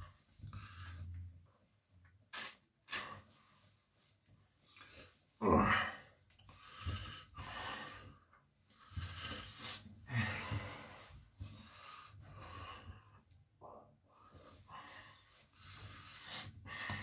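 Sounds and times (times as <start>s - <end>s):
rough breaths: 4.7s - 13.4s, 14.1s - 17.0s.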